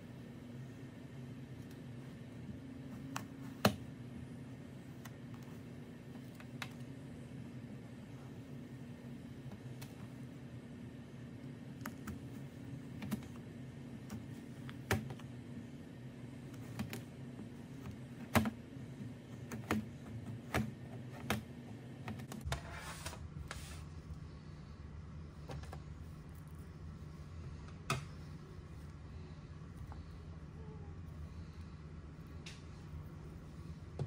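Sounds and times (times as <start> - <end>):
faint steady hum: 0.0 - 34.0.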